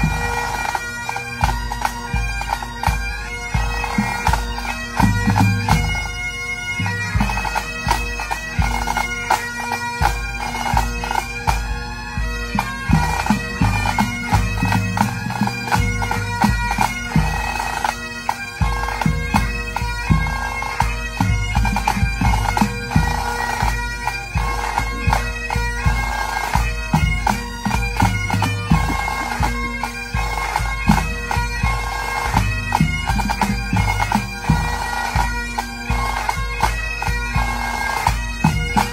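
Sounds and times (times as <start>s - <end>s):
bagpipes playing a melody: 0.0s - 38.9s
snare drums: 30.5s - 35.2s.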